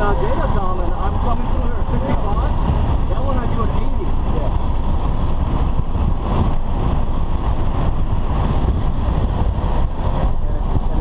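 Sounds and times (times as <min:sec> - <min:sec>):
engine tyre and wind noise: 0:00.0 - 0:11.0
wind buffeting on microphone: 0:00.0 - 0:11.0.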